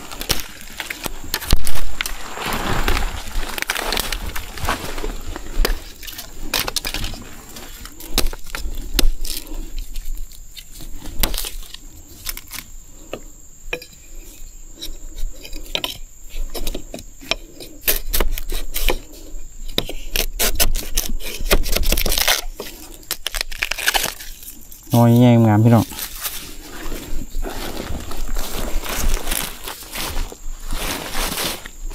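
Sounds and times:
dry bamboo and leaves snapping: 0.0 - 12.7, 20.1 - 26.6, 27.4 - 31.9.

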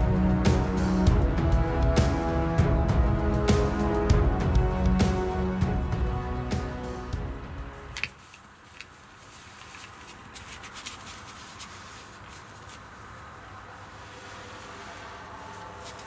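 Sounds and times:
background music: 0.0 - 8.2
faint rustles and ticks: 8.0 - 16.0.

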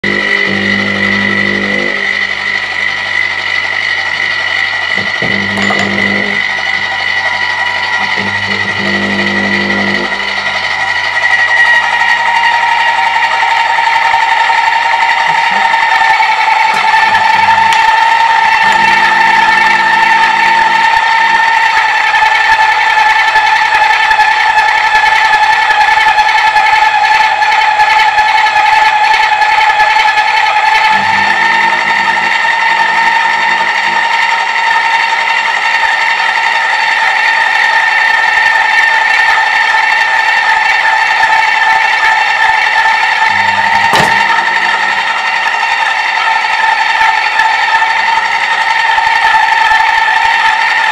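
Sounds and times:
electric motor whining: 0.0 - 23.0, 30.3 - 35.5, 42.9 - 49.7
mechanical hum: 0.0 - 50.9.

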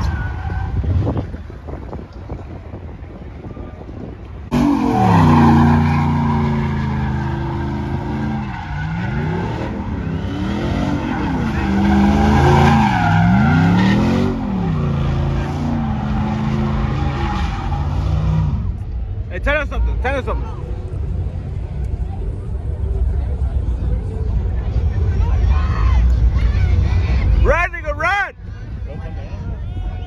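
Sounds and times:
truck engine revving: 4.5 - 18.8.

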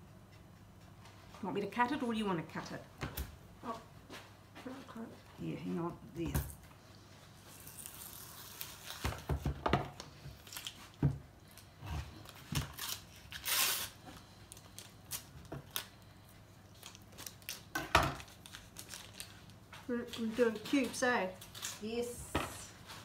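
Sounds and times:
wrapper crinkling and tearing: 7.5 - 9.2, 10.4 - 11.6, 12.2 - 16.0, 16.7 - 20.2, 21.4 - 21.8.

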